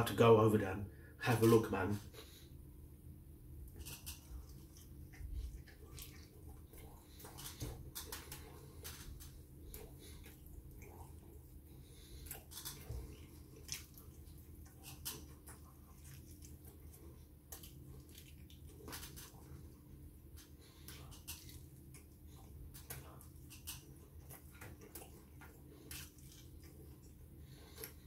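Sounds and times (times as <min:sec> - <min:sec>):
person chewing fried chicken: 0:03.7 - 0:28.0.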